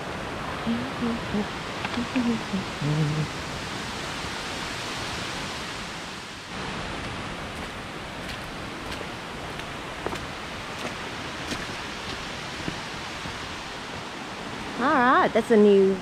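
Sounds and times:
flowing and falling water: 0:00.0 - 0:16.0
faint footsteps: 0:06.9 - 0:14.1.

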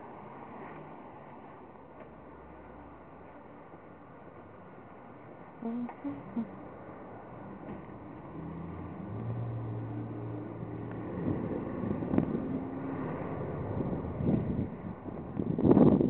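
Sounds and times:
wind buffeting microphone: 0:10.7 - 0:16.0.

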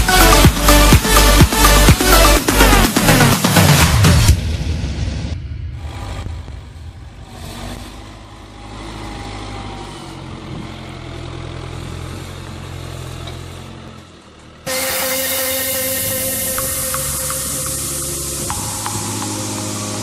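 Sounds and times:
tractor diesel engine under load: 0:05.7 - 0:20.0.

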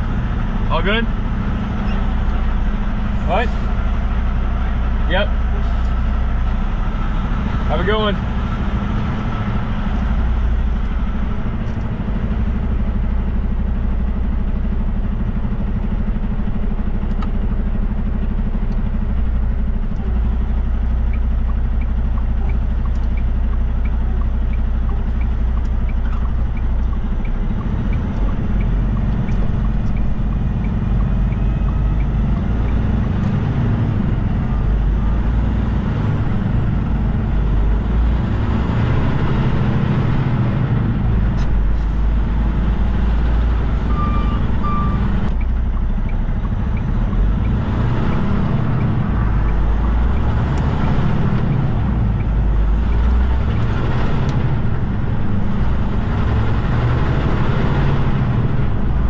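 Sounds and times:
diesel truck engine running: 0:00.0 - 0:59.0
turn signal clicking: 0:17.0 - 0:17.6, 0:20.8 - 0:33.4, 0:44.3 - 0:56.1.

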